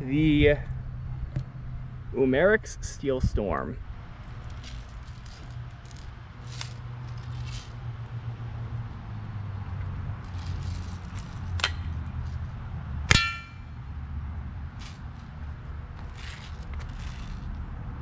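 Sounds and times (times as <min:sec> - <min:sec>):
metal plate ringing clang: 0:13.1 - 0:13.8.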